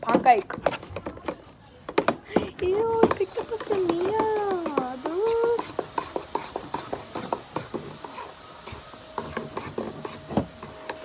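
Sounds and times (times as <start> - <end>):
metal spoon scraping tin pail: 3.1 - 11.0.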